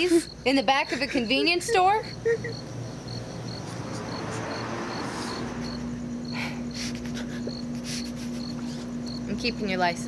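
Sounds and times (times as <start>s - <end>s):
crickets chirping: 0.0s - 10.0s
man sniffing and breathing shakily: 3.7s - 5.6s, 6.3s - 9.0s.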